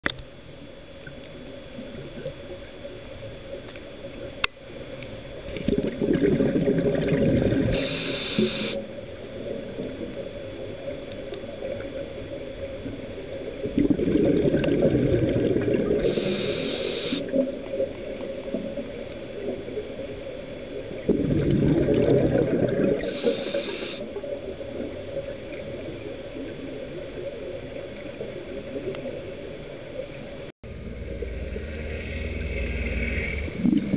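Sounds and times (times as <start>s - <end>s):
faint hum: 0.0s - 33.9s
underwater bubbles rushing: 0.9s - 33.9s
regulator hiss: 7.5s - 10.9s, 15.9s - 21.0s, 22.9s - 24.6s.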